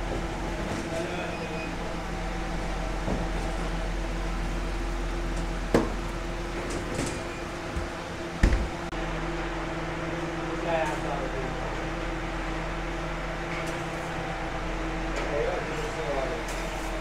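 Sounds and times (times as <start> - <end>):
steady machine hum: 0.0 - 17.0
oven door shutting with thump: 6.6 - 8.7.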